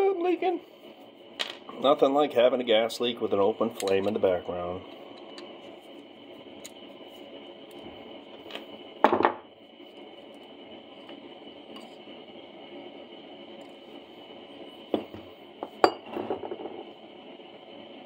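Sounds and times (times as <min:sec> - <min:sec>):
steady background hiss: 0:00.0 - 0:18.0.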